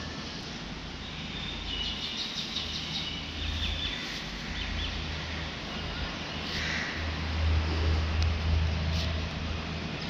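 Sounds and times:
birds chirping: 0:01.1 - 0:07.1.

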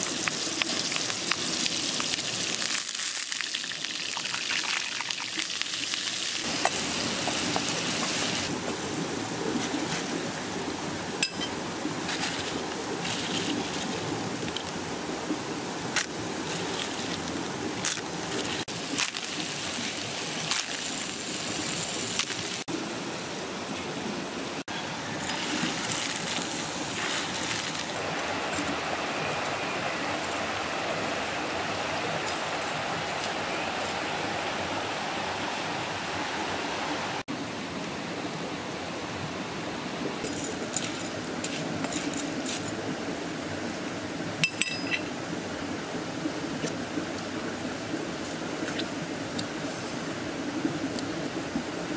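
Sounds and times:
shellfish sizzling in a pan: 0:00.0 - 0:08.5, 0:18.5 - 0:22.7
stream rushing over rocks: 0:00.0 - 0:51.9.

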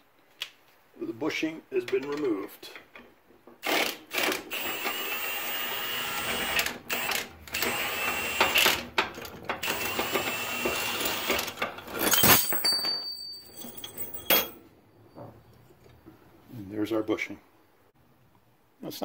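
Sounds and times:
impact wrench whining: 0:03.6 - 0:12.2.

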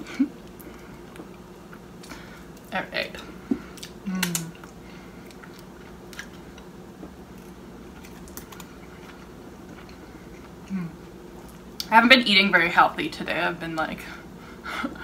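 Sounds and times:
chewing crunches: 0:03.6 - 0:10.8
person humming mm: 0:04.0 - 0:04.6, 0:10.7 - 0:11.0.

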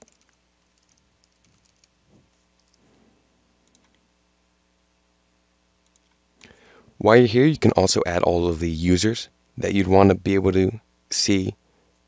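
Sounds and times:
keyboard typing clicks: 0:00.0 - 0:02.0
low electrical hum: 0:00.0 - 0:12.0.

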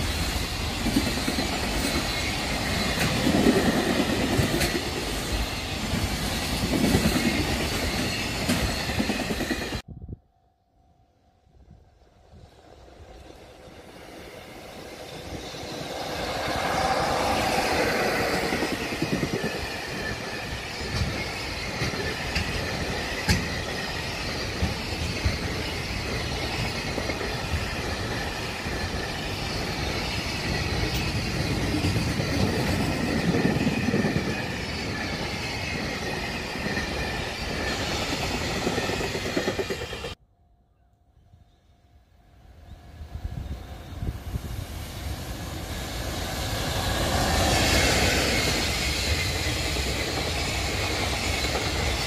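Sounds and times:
freight train wheels clattering: 0:14.8 - 0:40.2
knocks of train wagons: 0:20.8 - 0:25.7.

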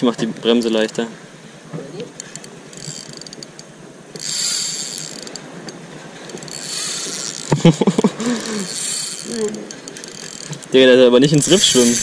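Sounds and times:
fishing reel drag clicking: 0:02.2 - 0:07.6, 0:08.3 - 0:10.7, 0:11.4 - 0:12.0.

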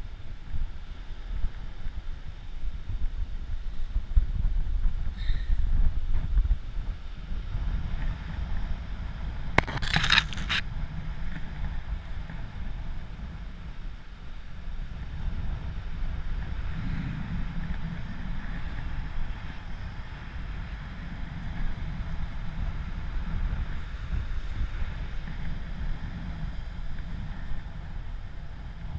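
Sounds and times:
wind rumbling on microphone: 0:00.0 - 0:28.9
crinkling rustle: 0:09.6 - 0:10.6.

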